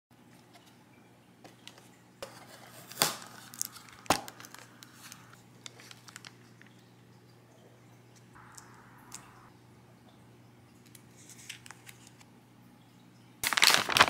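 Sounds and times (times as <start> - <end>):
plastic wrap crinkling: 2.7 - 6.8, 13.4 - 14.0
paper box opening: 13.5 - 14.0.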